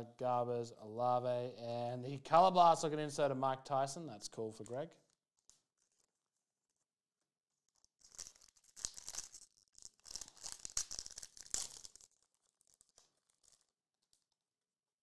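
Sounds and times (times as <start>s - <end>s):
foil wrapper tearing and crinkling: 7.6s - 14.3s.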